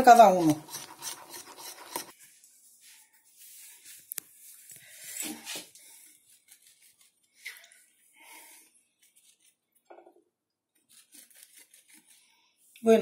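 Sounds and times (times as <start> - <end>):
soft scrapes: 0.8 - 7.5.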